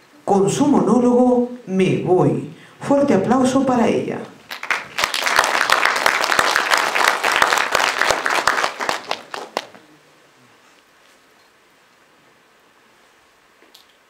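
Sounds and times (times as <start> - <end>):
audience applauding: 4.5 - 9.9.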